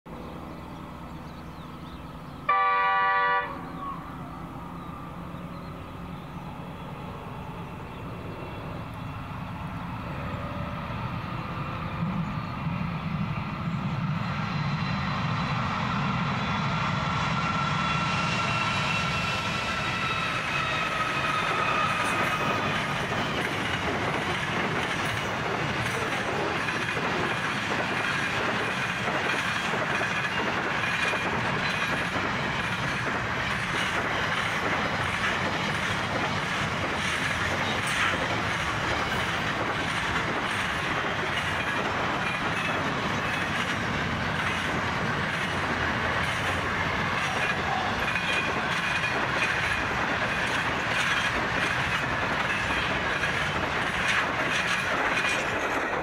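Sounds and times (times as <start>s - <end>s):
train engines passing: 0.1s - 56.0s
locomotive horn: 2.5s - 3.8s
wagons clattering over rails: 22.0s - 56.0s.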